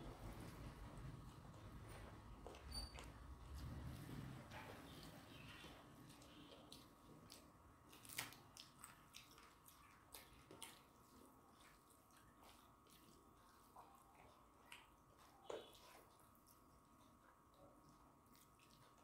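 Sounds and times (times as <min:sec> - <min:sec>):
wet smacks of eating by hand: 0:02.4 - 0:16.7.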